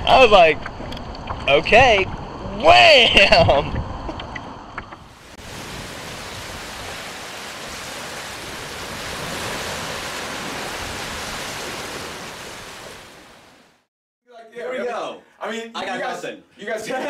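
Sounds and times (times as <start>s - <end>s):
surf washing on sand: 5.1s - 13.9s.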